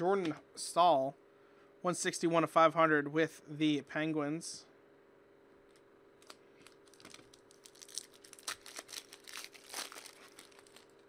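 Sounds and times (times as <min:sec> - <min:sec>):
faint steady hum: 0:00.0 - 0:11.0
foil wrapper crinkling and tearing: 0:06.6 - 0:11.0.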